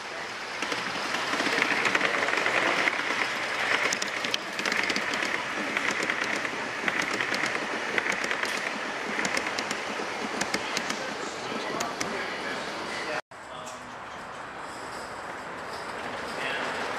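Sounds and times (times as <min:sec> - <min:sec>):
model train wheels rumbling: 0:00.0 - 0:12.9
sharp clicks of wheels: 0:00.6 - 0:11.0.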